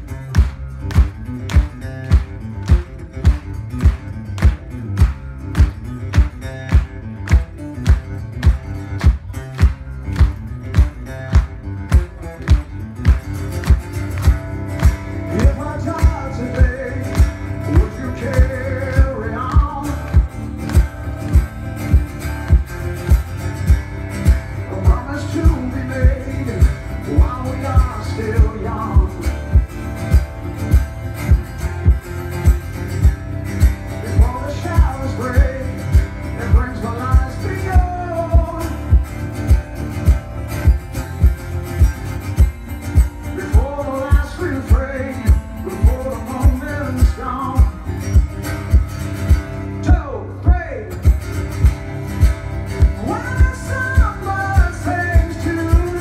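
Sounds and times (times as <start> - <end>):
strummed acoustic guitar: 0.0 - 56.0
low thumping beat: 0.3 - 49.6
man singing a rock ballad: 15.3 - 20.3, 24.6 - 29.5, 34.0 - 38.9, 43.4 - 47.8, 53.0 - 56.0.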